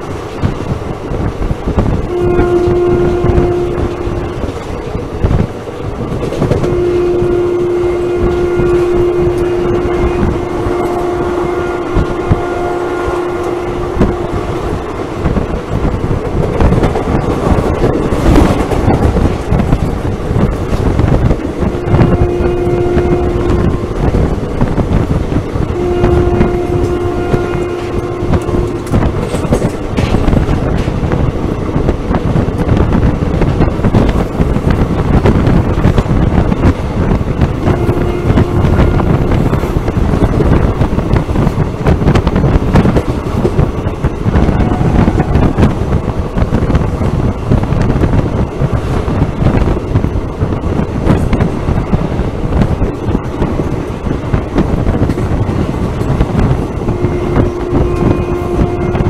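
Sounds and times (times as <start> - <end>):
train wheels clacking on rails: 0.0 - 59.0
wind rush: 0.0 - 59.0
train horn: 2.0 - 4.6, 6.3 - 15.5, 21.4 - 30.8, 35.2 - 48.2, 54.6 - 59.0.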